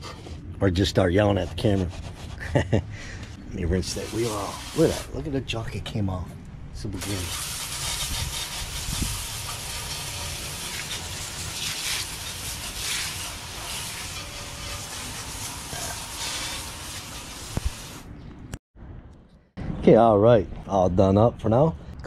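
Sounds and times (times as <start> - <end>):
hose water spraying on wheel: 3.8 - 5.1, 7.0 - 18.0.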